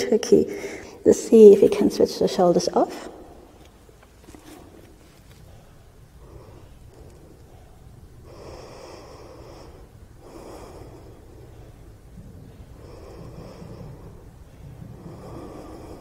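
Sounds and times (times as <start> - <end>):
woman breathing: 0.5 - 1.1, 4.6 - 16.0.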